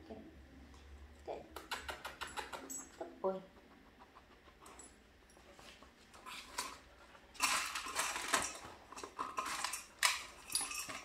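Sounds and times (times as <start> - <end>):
treats rattling in metal bowl: 6.4 - 11.0.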